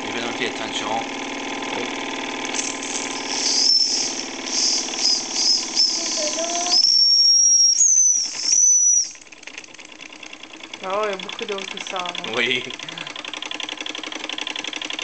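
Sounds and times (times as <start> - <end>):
toy steam engine running: 2.5 - 15.0
steam whistle toots: 2.9 - 9.2.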